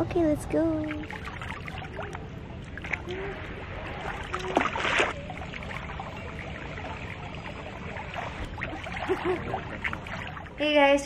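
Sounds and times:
water sloshing: 0.4s - 11.0s
splash into pool: 3.9s - 6.2s.

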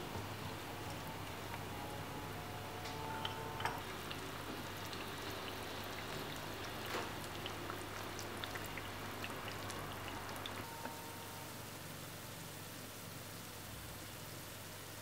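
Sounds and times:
low steady hum: 0.0s - 15.0s
shallots sizzling in oil: 3.8s - 15.0s.

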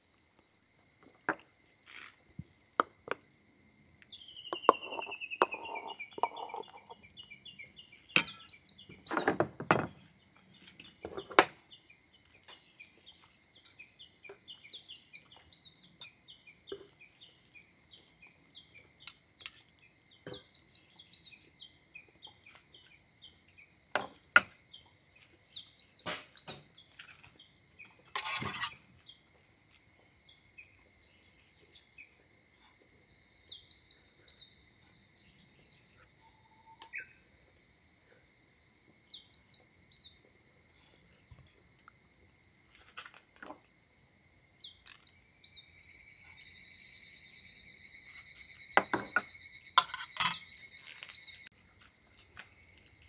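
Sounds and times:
insects trilling: 0.0s - 53.0s
birds chirping: 4.0s - 19.2s.

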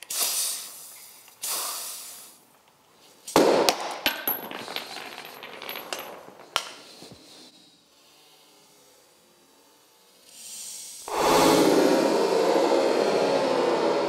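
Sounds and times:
compressed air hissing: 0.0s - 3.4s, 10.3s - 14.0s
piston blowing out with a bang: 11.1s - 14.0s.

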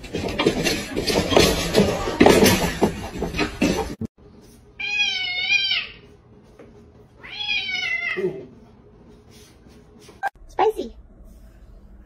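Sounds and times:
noisy clattering with clicks: 0.0s - 4.1s
cat meowing: 7.2s - 8.4s.

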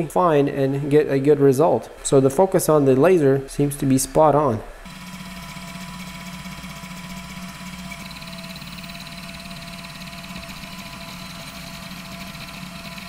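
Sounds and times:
higher mechanical whine: 4.8s - 13.0s
stepper motors humming: 4.9s - 13.0s.

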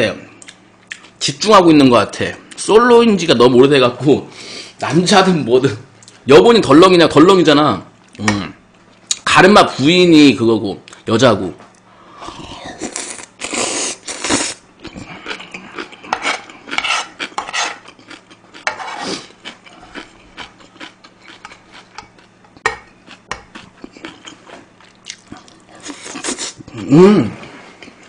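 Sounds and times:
chewing: 14.2s - 26.6s
spoon scraping frying pan: 16.1s - 17.8s, 18.6s - 19.1s.

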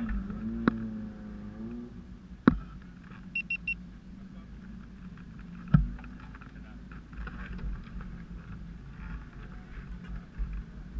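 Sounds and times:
short high beeps: 3.4s - 3.8s.

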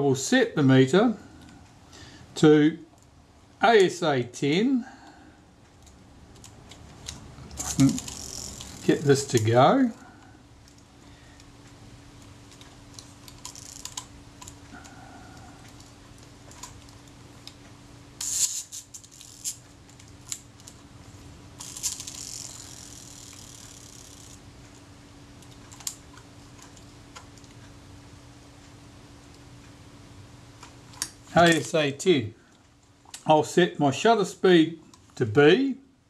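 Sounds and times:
faint steady hum: 0.0s - 36.0s
camera dials clicking: 5.8s - 9.5s, 21.6s - 24.4s.

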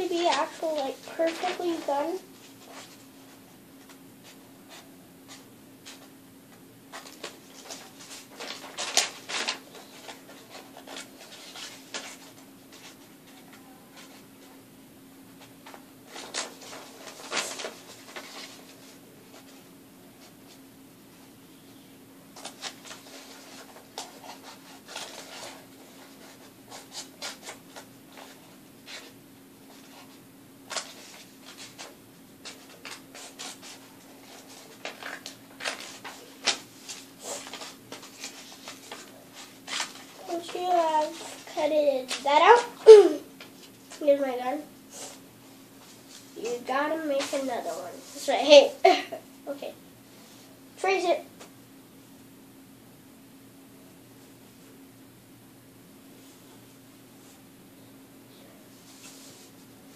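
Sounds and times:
paper rustling: 0.0s - 14.6s, 15.3s - 20.6s, 22.4s - 44.2s, 44.9s - 48.6s
faint steady hum: 0.0s - 59.9s.

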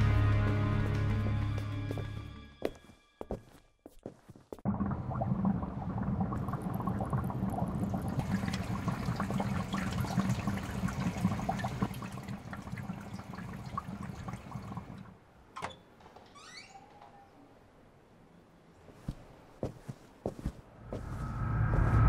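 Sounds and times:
aquarium water bubbling: 4.6s - 15.2s
brief rising tone: 21.0s - 22.0s.

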